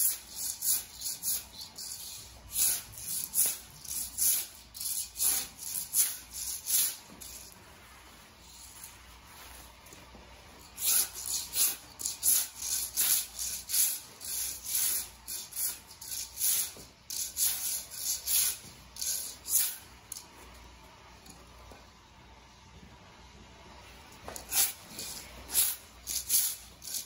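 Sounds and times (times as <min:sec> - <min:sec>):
metal scraper scraping floor: 0:00.0 - 0:07.5, 0:10.7 - 0:19.8, 0:24.3 - 0:27.0.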